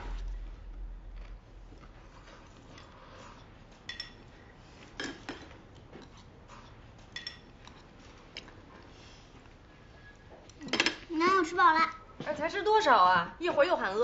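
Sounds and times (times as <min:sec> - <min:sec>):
chopsticks clinking on porcelain bowls: 0:02.7 - 0:04.3, 0:05.0 - 0:08.5.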